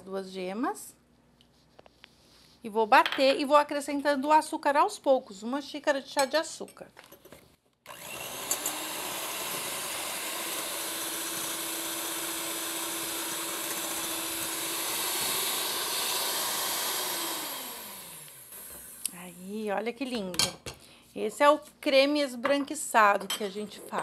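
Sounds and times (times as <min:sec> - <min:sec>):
electric mixer running: 0:07.9 - 0:19.1.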